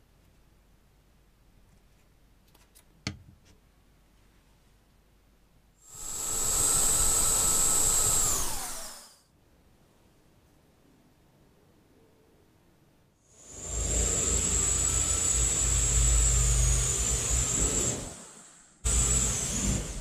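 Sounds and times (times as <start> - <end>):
electric motors whining: 5.9 - 9.2, 13.6 - 20.0.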